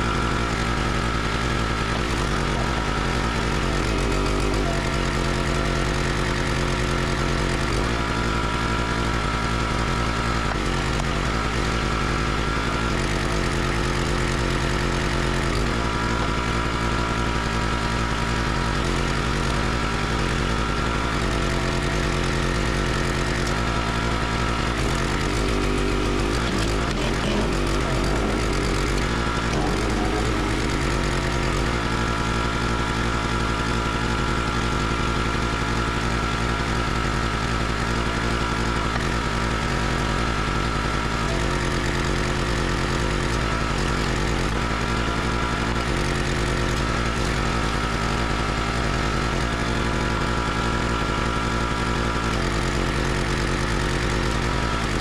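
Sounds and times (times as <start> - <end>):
log splitter engine running: 0.0 - 55.0.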